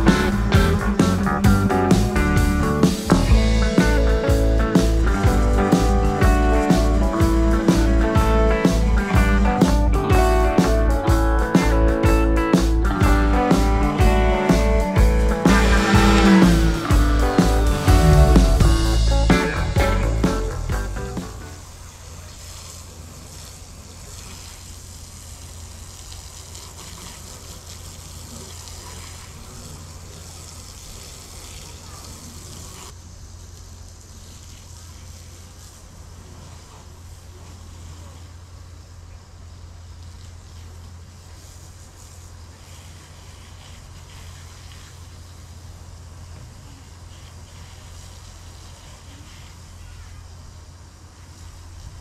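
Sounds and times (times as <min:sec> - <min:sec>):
steady low hum: 0:00.0 - 0:26.1
water spraying from hose: 0:00.0 - 0:52.0.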